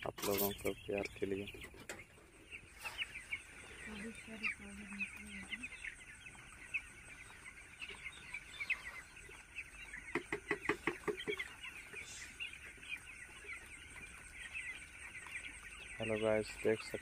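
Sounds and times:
chicks peeping and chirping: 0:00.0 - 0:17.0.

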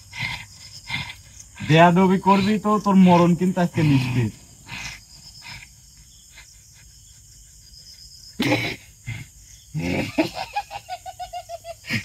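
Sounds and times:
man's voice bursting out: 0:01.6 - 0:04.4
man laughing rapidly: 0:09.8 - 0:12.0.

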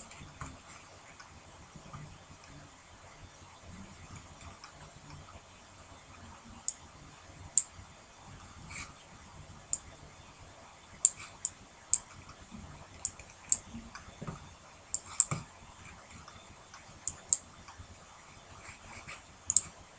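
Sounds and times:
computer mouse clicks: 0:11.0 - 0:12.4, 0:13.0 - 0:14.1, 0:14.9 - 0:15.5, 0:16.2 - 0:17.8, 0:19.0 - 0:19.7.

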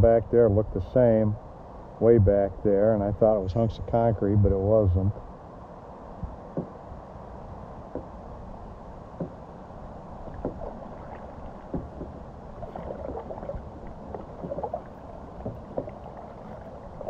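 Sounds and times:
low background rush: 0:00.0 - 0:17.0
paddle splashing in water: 0:10.2 - 0:17.0.

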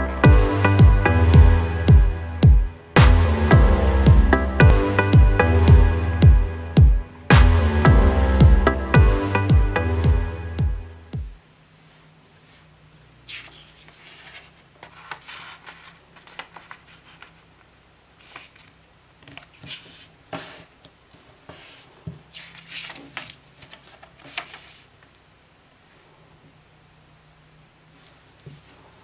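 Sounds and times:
paper rustling and crinkling: 0:13.3 - 0:25.1.

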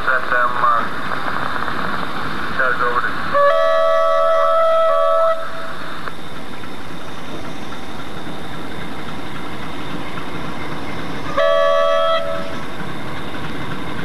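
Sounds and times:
diesel locomotive rumbling: 0:00.0 - 0:14.0
train air horn blast: 0:03.3 - 0:05.8, 0:11.3 - 0:12.6.

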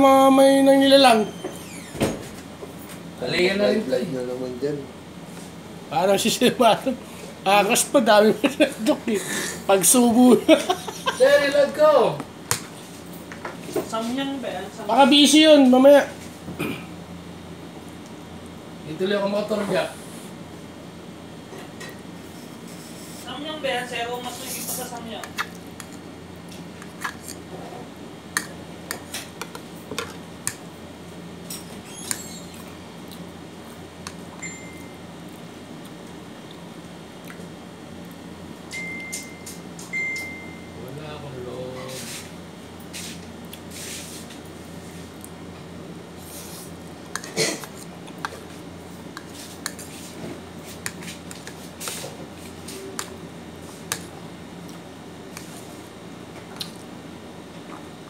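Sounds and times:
wet chewing and smacking: 0:25.3 - 0:27.2, 0:32.1 - 0:33.3, 0:35.2 - 0:38.2, 0:56.5 - 0:56.9.

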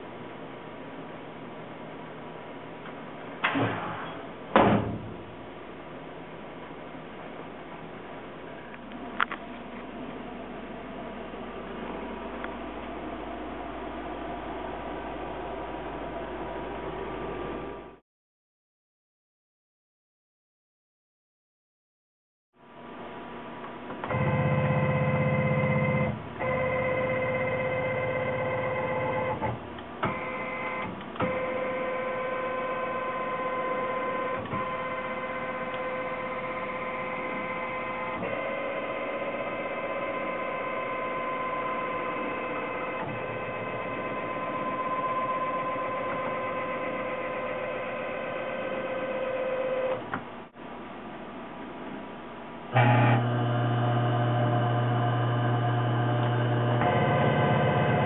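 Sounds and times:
low hum: 0:08.0 - 0:18.0
milling machine motors whining: 0:24.0 - 0:50.2, 0:52.7 - 0:58.0.

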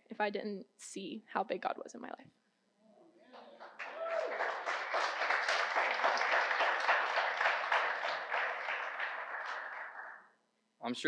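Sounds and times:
crowd applauding: 0:03.4 - 0:10.3.

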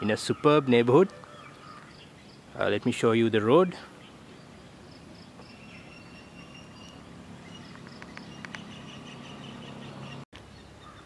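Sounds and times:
thin high calls: 0:04.0 - 0:10.2.

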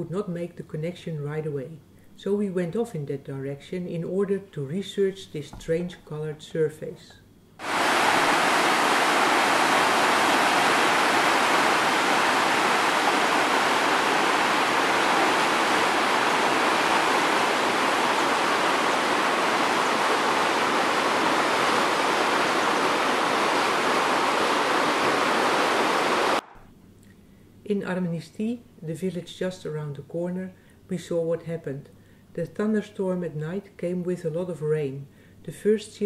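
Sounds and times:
floodwater rushing: 0:07.6 - 0:26.4.

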